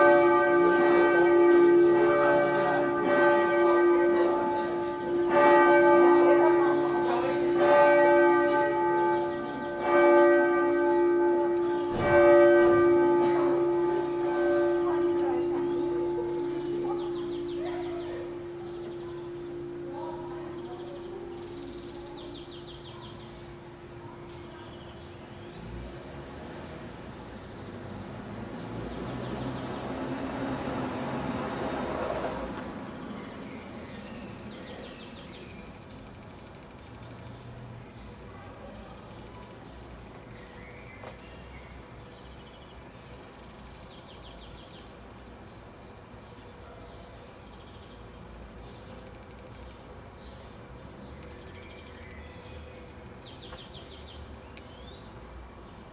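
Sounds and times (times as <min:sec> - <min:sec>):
bird-like trills: 0:00.0 - 0:25.8
insects chirping: 0:11.0 - 0:29.0, 0:32.6 - 0:55.9.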